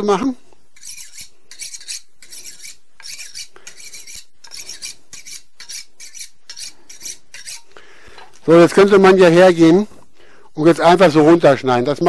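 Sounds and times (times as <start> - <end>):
knife scraping on sharpening steel: 0.7 - 7.7.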